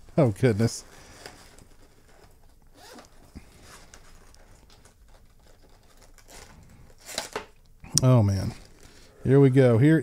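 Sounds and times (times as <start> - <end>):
zipper being pulled open: 2.7 - 4.0.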